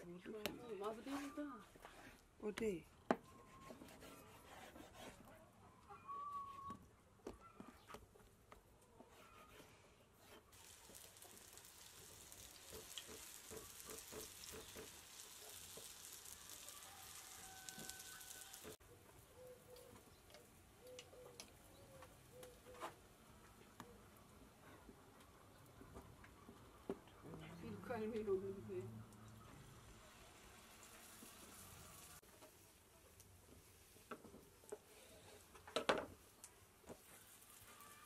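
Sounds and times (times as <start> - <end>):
faint birdcalls: 5.6 - 8.0, 16.5 - 22.9
dough sizzling in oil: 10.5 - 18.8, 29.6 - 34.7, 36.9 - 38.0.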